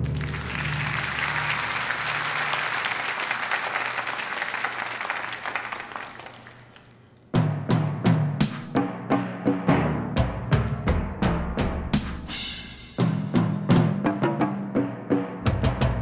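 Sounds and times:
audience applause: 0.0s - 7.1s
rhythmic drum strikes: 7.3s - 16.0s.

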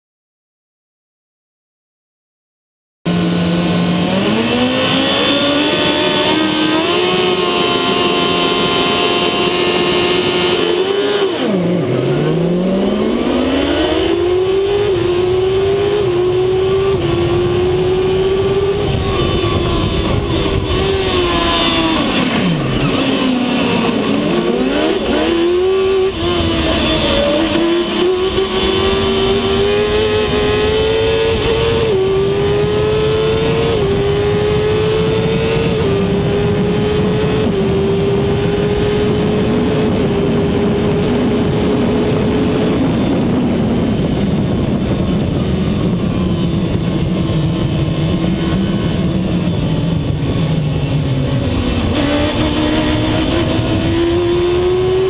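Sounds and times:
racing car engine at high revs: 3.1s - 55.0s.

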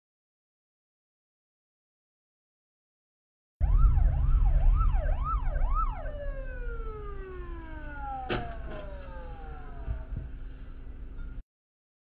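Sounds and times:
emergency vehicle siren wailing: 3.6s - 11.3s
low road rumble: 3.6s - 11.4s.

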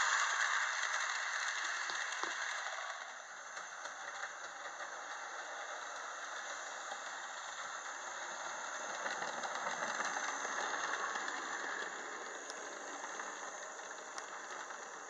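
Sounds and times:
model train whirring rattle: 0.0s - 15.0s.

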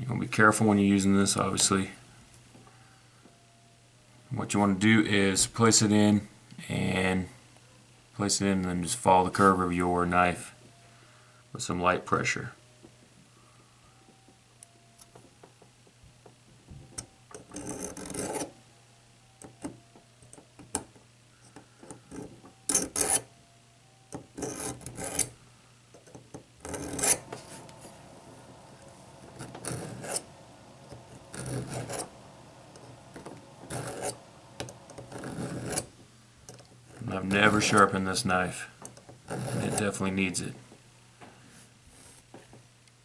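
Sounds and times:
knife rasping through sharpener: 22.7s - 23.3s, 26.6s - 27.2s.

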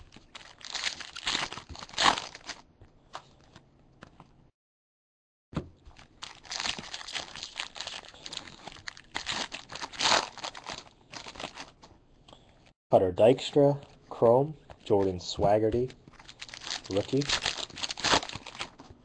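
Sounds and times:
foil wrappers crinkling: 0.0s - 3.6s, 5.9s - 11.9s, 16.1s - 18.9s.

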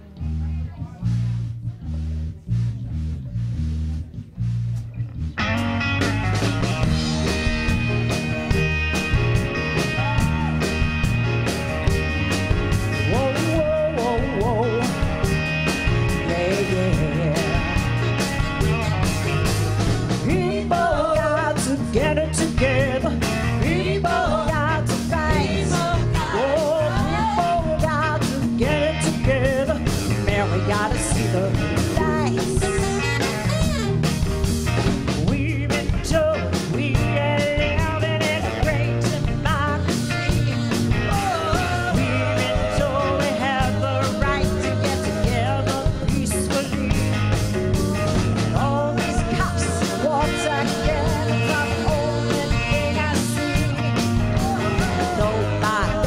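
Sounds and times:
steady bass line: 0.0s - 56.0s
drum beat: 5.4s - 56.0s
backing singers: 19.9s - 34.0s, 40.5s - 56.0s
woman singing lead: 20.2s - 34.2s, 35.3s - 56.0s.

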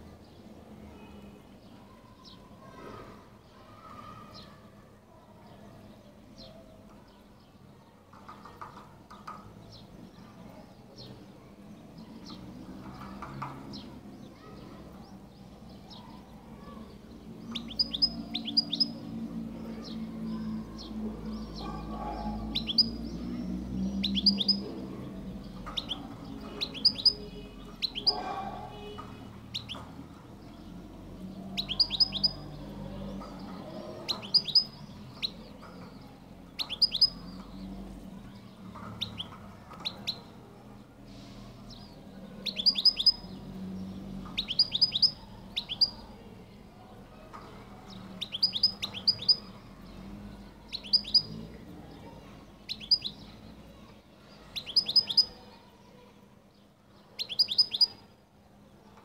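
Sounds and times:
goldfinch singing: 17.4s - 19.3s, 20.8s - 23.2s, 23.8s - 30.6s, 31.5s - 32.6s, 33.6s - 37.7s, 41.8s - 43.4s, 44.1s - 46.0s, 47.9s - 51.6s, 52.6s - 53.4s, 54.5s - 55.4s, 57.2s - 58.0s.

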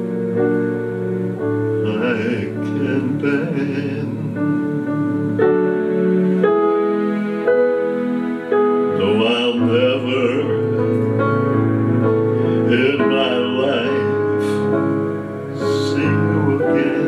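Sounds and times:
keyboard playing slow chords: 0.0s - 17.0s
man singing: 1.7s - 5.4s, 8.9s - 11.0s, 11.9s - 14.8s, 15.5s - 17.0s.

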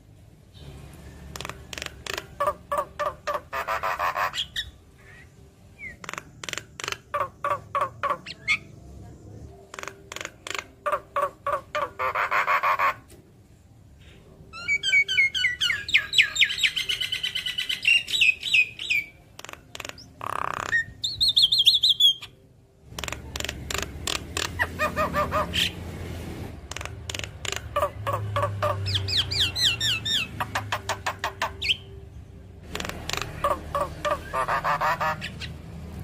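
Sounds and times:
myna chirping and chattering: 0.6s - 8.7s, 9.6s - 13.0s, 14.6s - 25.9s, 26.6s - 32.0s, 32.6s - 35.6s.

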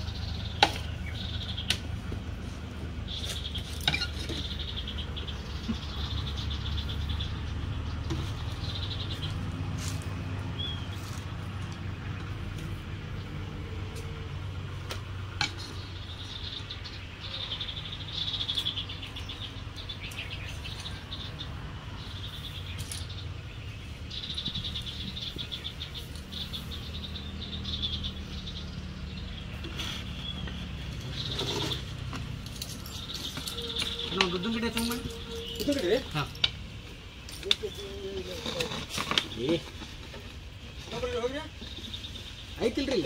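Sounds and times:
buzzy trilling calls: 32.8s - 36.4s.

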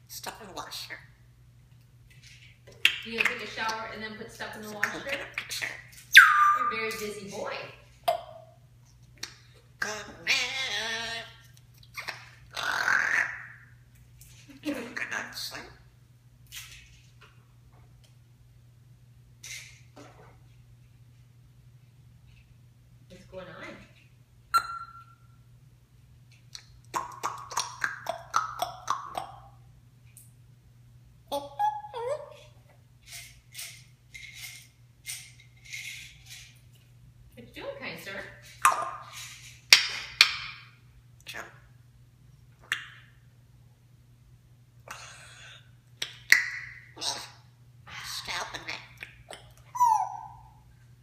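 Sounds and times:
parrot clicking calls: 2.7s - 3.8s, 4.7s - 7.1s, 9.2s - 13.7s, 26.5s - 29.6s, 38.6s - 40.6s, 44.9s - 47.4s
parrot hissing: 44.9s - 45.7s.

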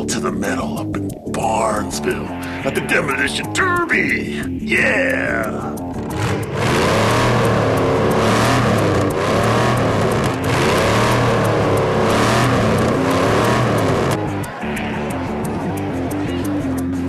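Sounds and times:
car engine revving: 4.2s - 17.0s.

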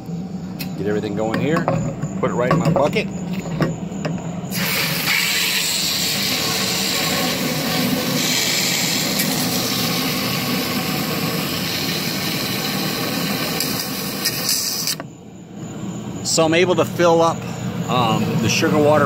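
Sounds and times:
syrup gushing from hose into jug: 4.5s - 14.8s.

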